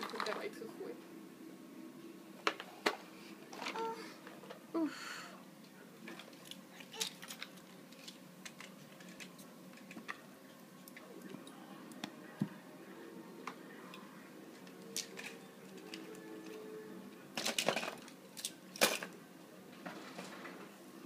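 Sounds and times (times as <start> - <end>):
light clicks and taps of toys: 6.1 - 10.2.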